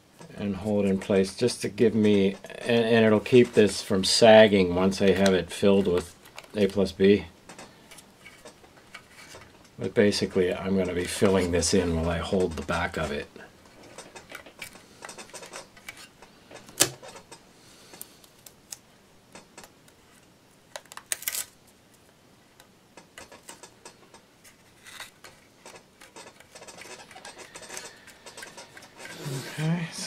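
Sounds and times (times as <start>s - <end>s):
tape crinkles and clicks: 5.0s - 9.5s, 18.0s - 18.9s, 19.6s - 29.7s.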